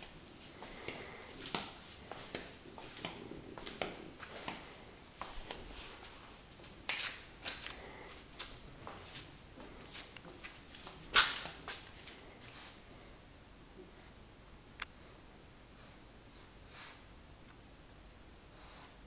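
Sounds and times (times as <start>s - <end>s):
faint rustling: 0.0s - 13.1s.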